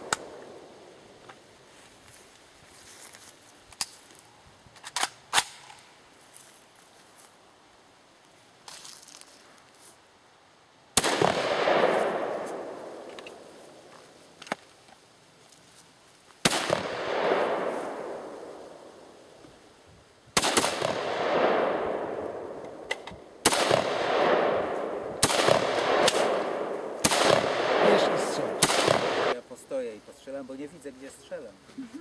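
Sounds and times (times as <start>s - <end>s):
rifle shots with echo: 11.0s - 13.5s, 16.4s - 18.8s, 20.4s - 29.4s.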